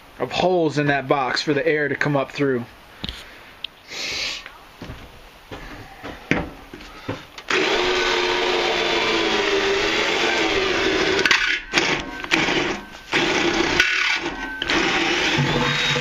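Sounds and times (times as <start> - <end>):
power drill boring through metal: 7.5 - 16.0.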